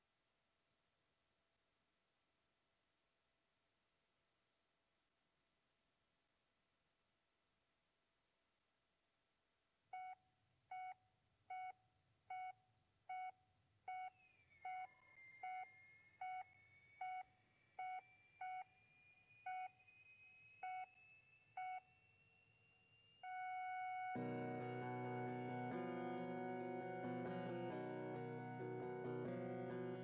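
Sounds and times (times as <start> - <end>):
heart monitor beeps: 9.9 - 27.5
flatline tone: 14.0 - 30.0.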